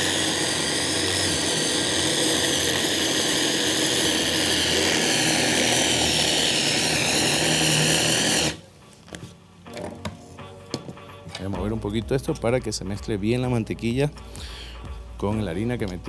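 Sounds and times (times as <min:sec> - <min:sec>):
electric mixer running: 0:00.0 - 0:08.7.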